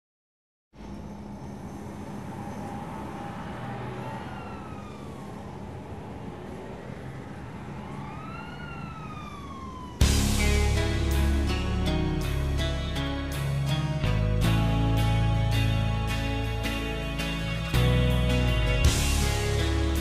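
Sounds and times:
low city rumble: 0.7 - 20.0
siren wailing: 2.2 - 11.5
loud band music: 10.0 - 20.0.

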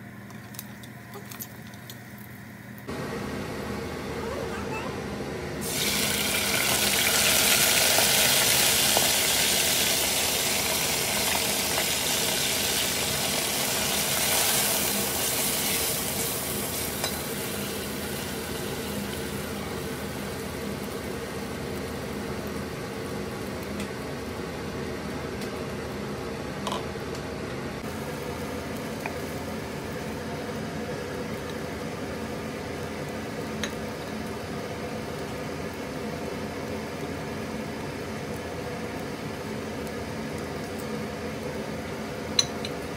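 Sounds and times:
lentils sizzling in hot oil: 5.6 - 24.3.

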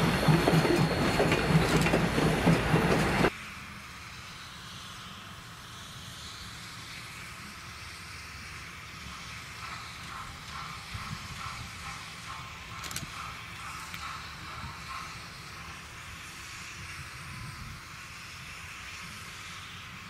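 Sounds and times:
train wheels clacking over rail joints: 0.0 - 3.3, 9.0 - 15.9
distant steam locomotive working: 0.0 - 20.0.

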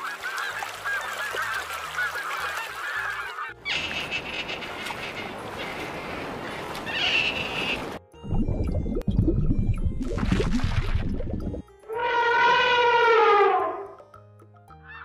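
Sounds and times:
geese honking: 0.0 - 8.0, 11.9 - 14.0.

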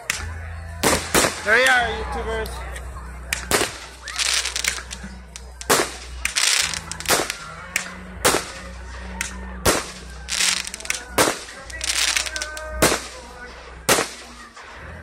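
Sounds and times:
fireworks banging: 0.8 - 1.6, 3.4 - 8.7, 9.6 - 14.5
fireworks crackling: 0.8 - 1.7, 3.3 - 14.7.

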